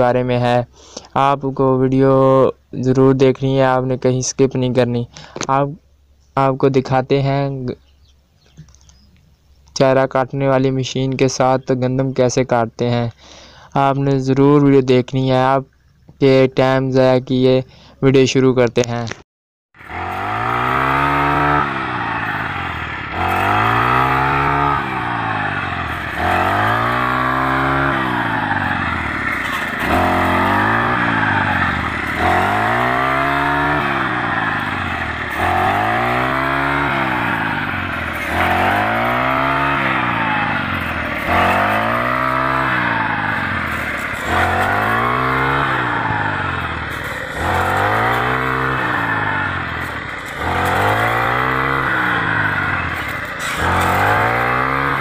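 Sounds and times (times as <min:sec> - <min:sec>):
brush cutter engine cutting wheat: 0:19.8 - 0:55.0.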